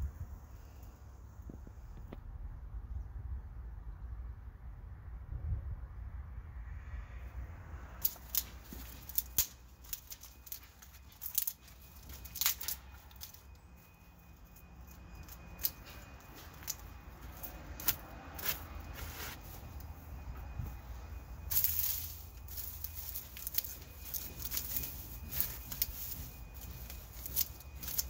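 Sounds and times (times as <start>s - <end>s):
dry grass rustling and snapping: 8.0s - 28.0s.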